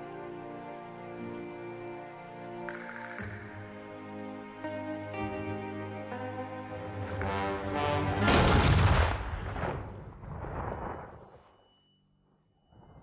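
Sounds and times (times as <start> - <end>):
gunshots: 8.2 - 10.0.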